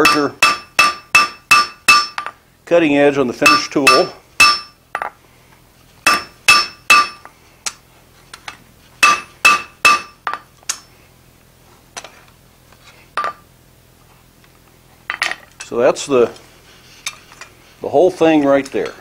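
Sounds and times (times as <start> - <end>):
hammer striking steel on anvil: 0.0 - 2.4, 3.4 - 5.1, 6.0 - 7.3, 9.0 - 10.9.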